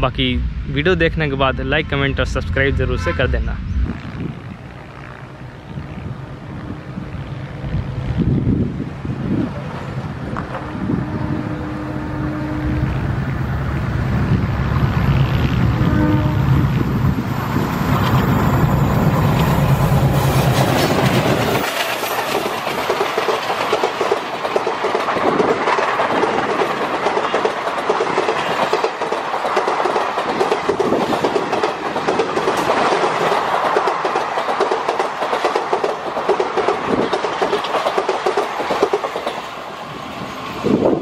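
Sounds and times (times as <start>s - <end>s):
diesel locomotive engine rumbling: 0.0s - 41.0s
train wheels clattering on rails: 16.5s - 41.0s.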